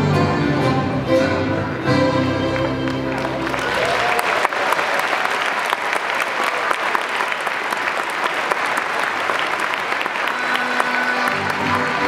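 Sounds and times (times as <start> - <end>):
music: 0.0 - 3.8, 10.0 - 12.0
audience applauding: 2.4 - 12.0.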